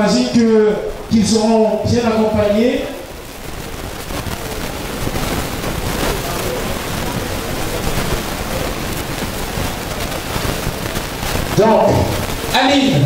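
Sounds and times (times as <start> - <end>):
crowd talking in a hall: 4.2 - 10.5.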